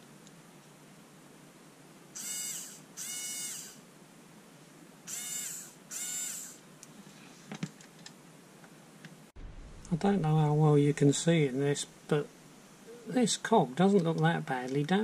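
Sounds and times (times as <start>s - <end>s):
small electric motor whine: 2.2s - 3.8s, 5.1s - 6.6s.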